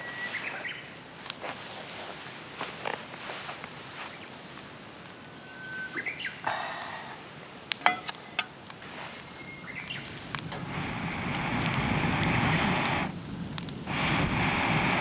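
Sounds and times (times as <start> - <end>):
bird singing whistled phrases: 0.0 - 0.9, 5.4 - 6.4, 9.3 - 10.0.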